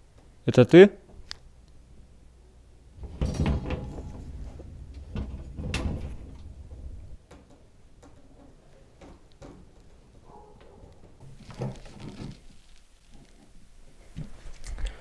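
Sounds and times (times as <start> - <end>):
low rumble: 1.5 - 7.3.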